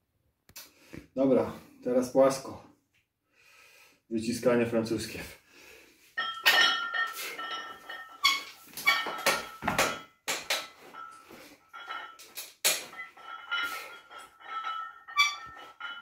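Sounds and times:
barbell plates clanking: 6.2s - 10.2s, 10.8s - 16.0s.

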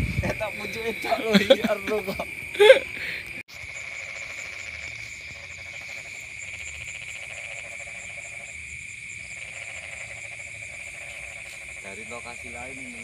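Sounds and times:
high-pitched insect trill: 0.0s - 13.0s
pulsing frog chorus: 0.0s - 13.0s.

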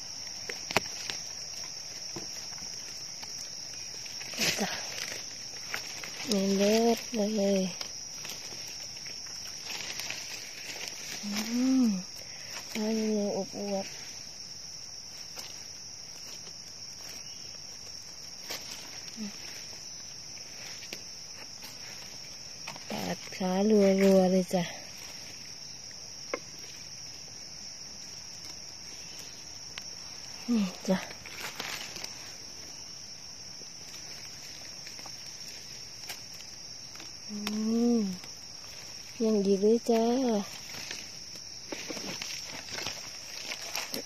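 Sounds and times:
dry leaves rustling: 0.0s - 44.0s
high-pitched insect drone: 0.0s - 44.0s
person humming: 11.2s - 12.1s.

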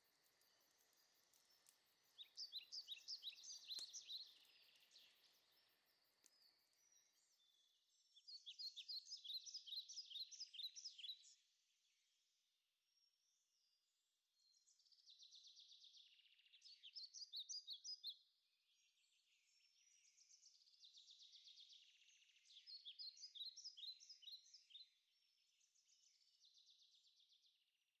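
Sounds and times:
songbird trilling: 1.5s - 5.8s.

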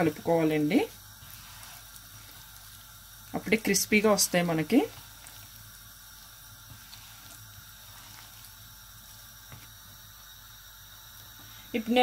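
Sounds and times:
hands squelching in batter: 1.2s - 2.8s, 4.0s - 8.7s.

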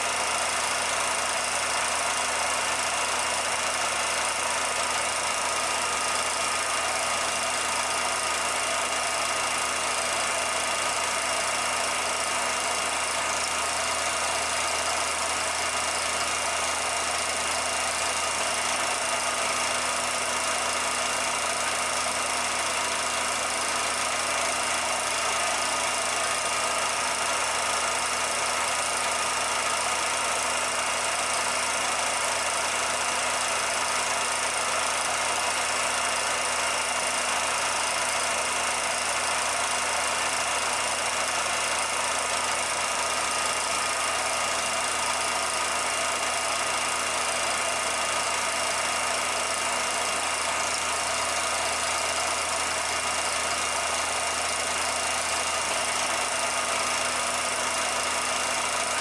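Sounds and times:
film projector whirring: 0.0s - 59.0s.

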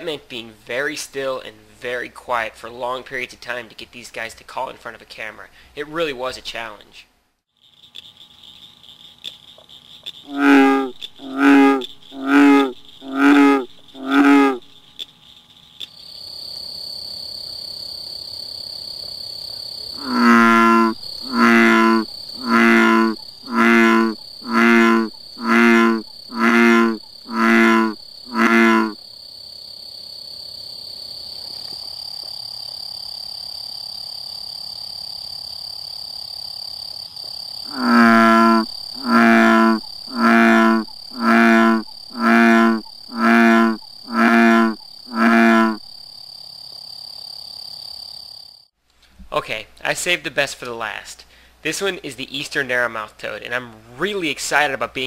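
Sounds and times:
bullfrog deep croaks: 9.2s - 16.1s, 19.8s - 29.1s, 37.6s - 46.0s.

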